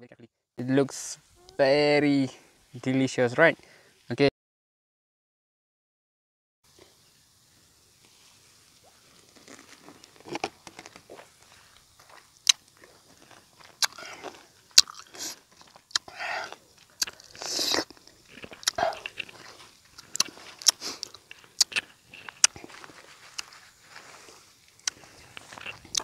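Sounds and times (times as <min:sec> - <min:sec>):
biting and wet chewing: 0:08.8 - 0:26.0
sharp mouth clicks: 0:13.8 - 0:22.7, 0:24.8 - 0:26.0
hissing sounds: 0:15.1 - 0:22.6.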